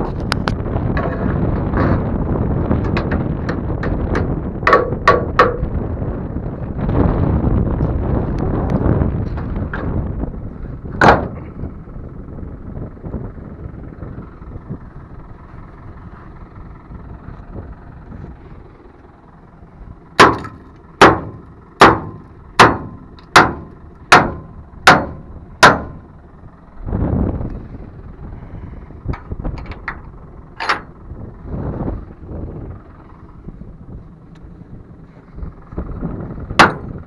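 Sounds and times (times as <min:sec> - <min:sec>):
tractor engine running: 0:00.0 - 0:37.0
loud metal bangs on trailer: 0:11.0 - 0:11.4, 0:20.2 - 0:26.1, 0:36.6 - 0:37.0
rush of noise: 0:24.4 - 0:37.0
light metal clanks: 0:29.1 - 0:31.0.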